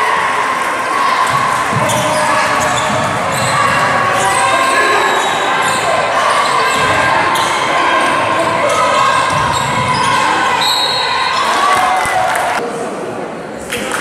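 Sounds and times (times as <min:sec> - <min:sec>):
crowd chatter: 0:00.0 - 0:14.0
basketball bouncing: 0:01.2 - 0:07.6, 0:08.2 - 0:10.2
shoe squeaks: 0:01.8 - 0:07.7, 0:08.6 - 0:11.5.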